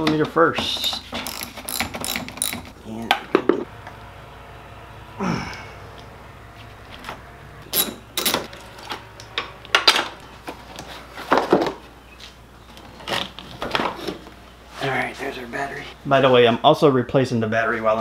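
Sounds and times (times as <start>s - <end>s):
metal scraping: 3.6s - 11.4s.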